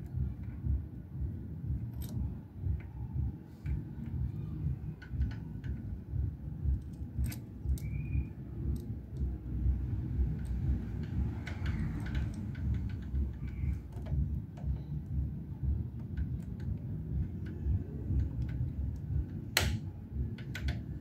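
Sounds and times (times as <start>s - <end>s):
steady low rumble: 0.0s - 21.0s
metallic clicks of small parts: 1.9s - 2.3s, 6.8s - 9.4s, 10.2s - 14.9s.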